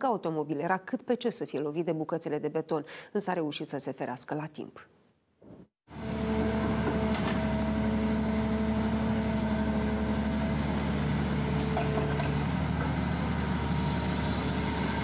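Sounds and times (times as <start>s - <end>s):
excavator diesel engine whining: 5.9s - 15.0s.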